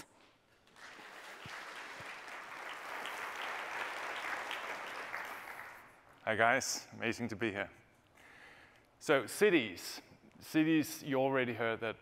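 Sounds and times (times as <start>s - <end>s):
audience applauding: 0.6s - 6.1s.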